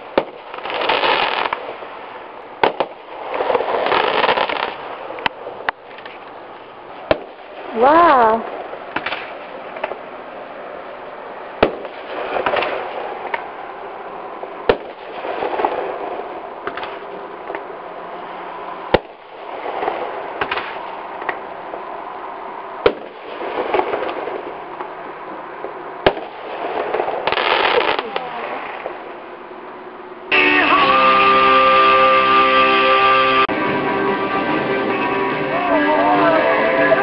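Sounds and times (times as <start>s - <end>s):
fireworks bangs: 0.0s - 6.2s, 7.0s - 10.2s, 11.5s - 21.8s, 22.8s - 29.1s.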